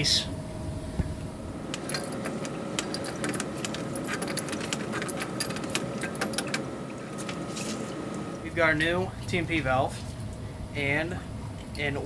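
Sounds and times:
steady background hum: 0:00.0 - 0:12.0
metal tool clicking and scraping: 0:01.7 - 0:06.6.

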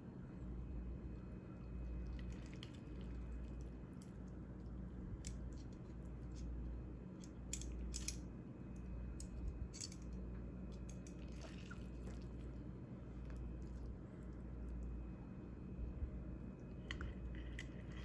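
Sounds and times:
steady low hum: 0:00.0 - 0:18.0
metal tongs clicking and scraping: 0:07.2 - 0:08.2, 0:09.2 - 0:10.0.

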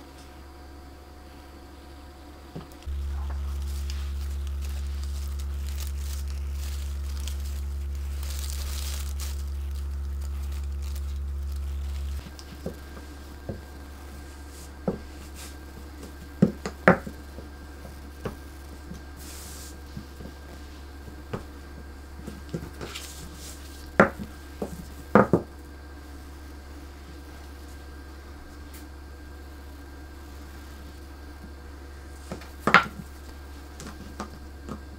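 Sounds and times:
low electrical hum: 0:00.0 - 0:34.9
rolling pin and knife tapping: 0:16.0 - 0:17.5.

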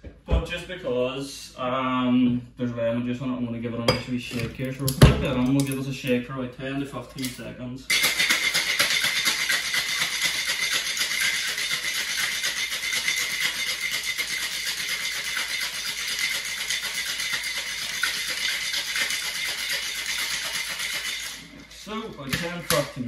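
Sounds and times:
ice rattling in cocktail shaker: 0:07.9 - 0:23.0.

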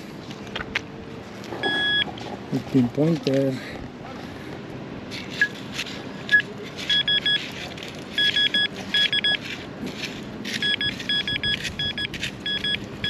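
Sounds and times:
pinpointer short high beeps: 0:01.6 - 0:02.1, 0:06.3 - 0:07.4, 0:08.2 - 0:09.4, 0:10.6 - 0:12.8
scraping noises: 0:05.1 - 0:12.8.

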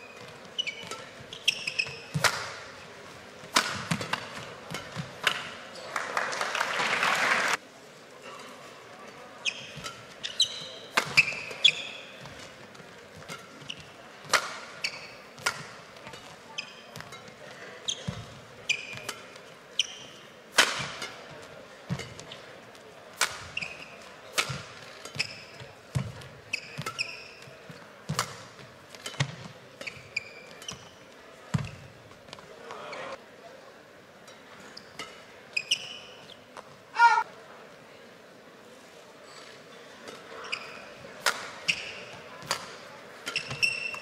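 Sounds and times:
shoes squeaking on court: 0:00.0 - 0:05.9, 0:09.2 - 0:33.2, 0:34.6 - 0:36.8, 0:39.2 - 0:44.0
rackets striking shuttlecock: 0:00.1 - 0:02.8, 0:03.4 - 0:05.6, 0:09.6 - 0:12.6, 0:13.2 - 0:17.4, 0:18.0 - 0:21.3, 0:23.2 - 0:27.5, 0:28.1 - 0:31.7, 0:41.2 - 0:44.0.

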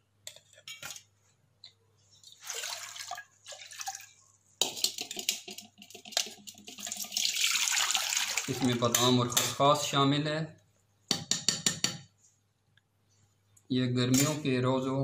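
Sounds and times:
water pouring through a strainer: 0:02.2 - 0:04.2, 0:06.1 - 0:09.0.

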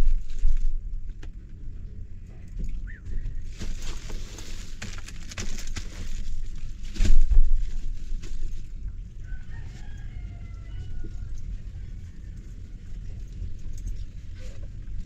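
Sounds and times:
rooster crowing: 0:09.2 - 0:12.6.

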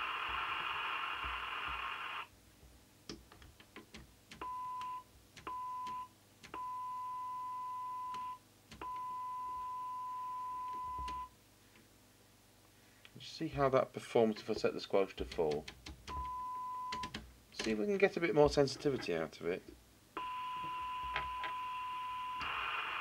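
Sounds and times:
radio hiss: 0:00.0 - 0:02.3, 0:22.3 - 0:23.0.

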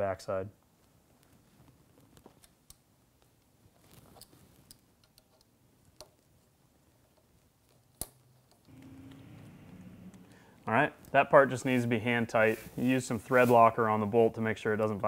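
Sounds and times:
small metal clicks and taps: 0:04.2 - 0:06.3.

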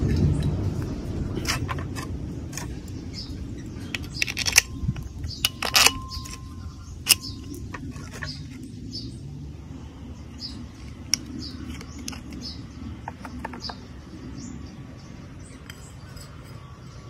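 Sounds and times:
metal parts clicking and knocking: 0:03.8 - 0:08.5.

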